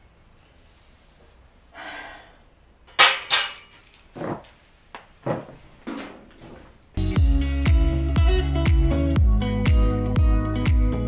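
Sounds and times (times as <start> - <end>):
breathy exhale: 1.7 - 2.5.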